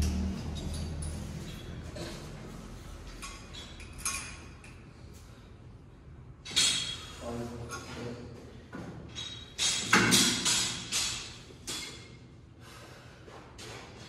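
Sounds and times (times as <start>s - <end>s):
gym weights clanking: 9.1s - 12.1s.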